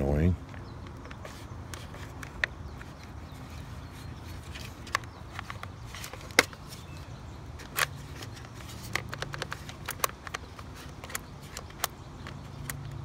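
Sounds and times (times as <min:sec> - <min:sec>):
plastic toy clicks and rattles: 0:07.6 - 0:13.0.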